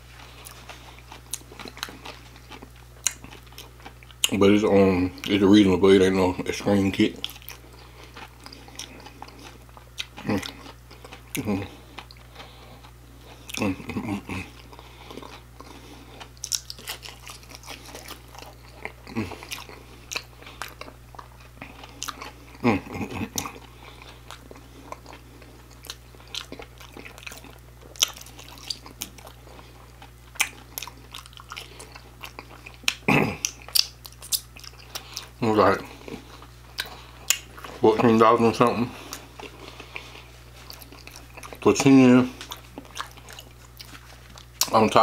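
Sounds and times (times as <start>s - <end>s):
crunchy chewing: 0.0s - 45.0s
wet mouth sounds: 30.0s - 37.8s.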